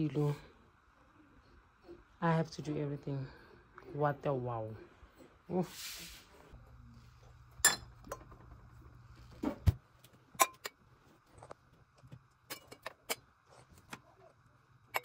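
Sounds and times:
glasses clinking: 7.6s - 8.3s, 10.4s - 10.8s.

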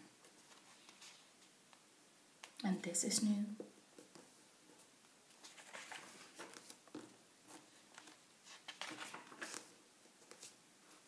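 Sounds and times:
book pages turning: 5.3s - 11.0s.

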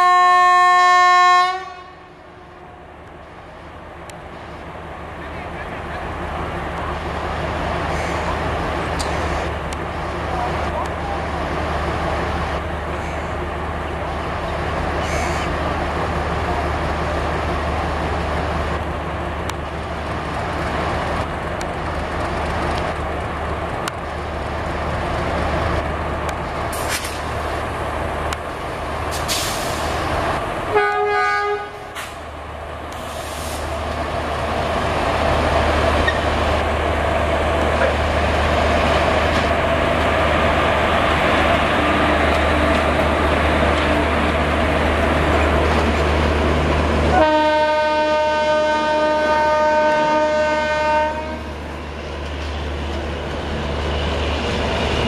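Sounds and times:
locomotive horn toot: 0.0s - 2.1s, 30.7s - 32.0s, 47.1s - 51.5s
train rumbling past: 0.0s - 55.0s.

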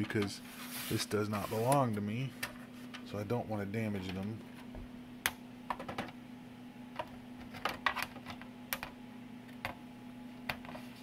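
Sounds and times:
steady low hum: 0.0s - 11.0s
circuit cards clicking into connectors: 7.0s - 9.8s.

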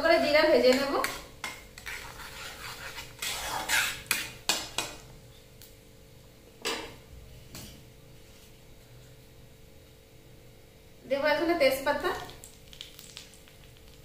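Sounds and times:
metal spatula scraping a pan: 0.7s - 4.9s.

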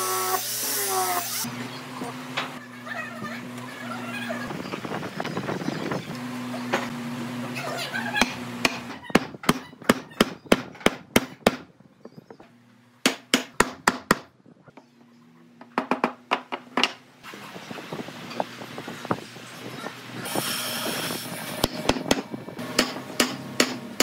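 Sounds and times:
hammer striking wood: 13.0s - 14.3s, 21.6s - 24.0s.

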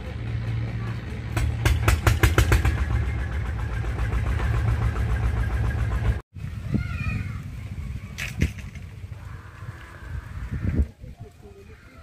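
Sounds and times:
engine idling: 0.0s - 6.2s.

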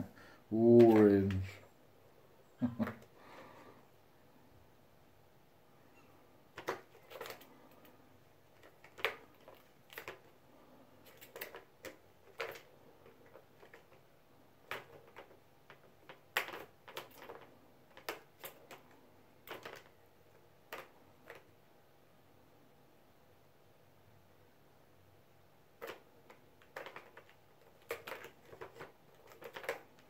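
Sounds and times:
balls rattling in plastic tracks: 0.6s - 1.6s, 6.5s - 21.5s, 25.7s - 30.0s
paws knocking plastic frame: 25.8s - 30.0s.

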